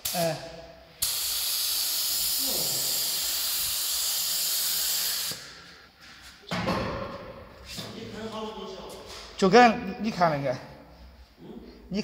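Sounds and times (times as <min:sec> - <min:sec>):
spray gun hissing: 0:01.0 - 0:05.7.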